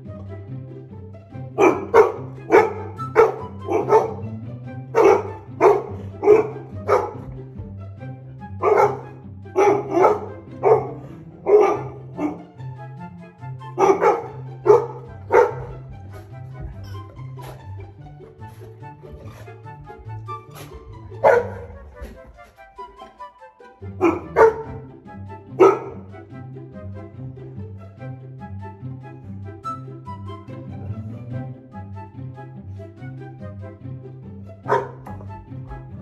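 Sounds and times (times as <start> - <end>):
dog barking: 1.6 - 4.3, 4.9 - 7.4, 8.6 - 12.4, 13.8 - 16.3, 20.6 - 22.4, 24.0 - 24.8, 25.6 - 26.1, 34.7 - 35.2.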